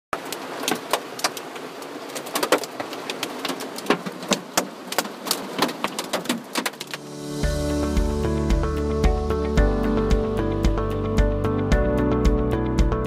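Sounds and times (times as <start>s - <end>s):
hailstones on roof: 0.2s - 7.0s.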